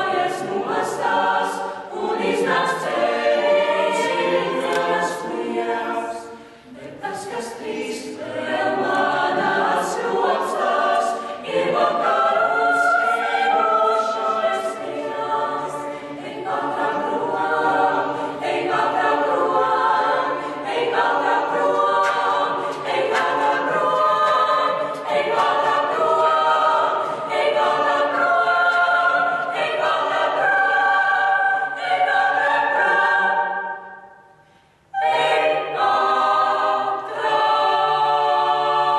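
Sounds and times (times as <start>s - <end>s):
vocal ensemble singing unaccompanied: 0.0s - 38.9s.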